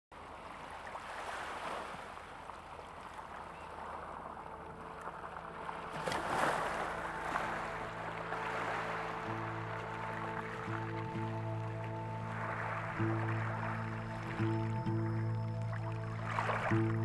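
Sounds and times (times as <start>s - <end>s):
waves washing over pebbles: 0.2s - 10.8s
faint music tones: 3.2s - 17.0s.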